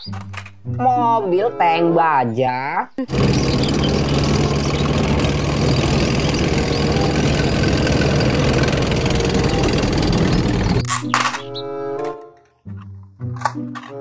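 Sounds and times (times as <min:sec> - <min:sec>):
tank engine low note: 0:03.0 - 0:11.1
tank tracks rattling: 0:03.1 - 0:12.2.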